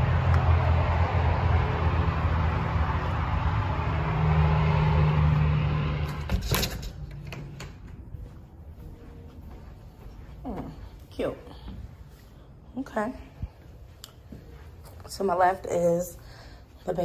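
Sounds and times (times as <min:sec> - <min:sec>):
low outdoor rumble: 0:00.0 - 0:17.0
door shutting: 0:06.0 - 0:08.0.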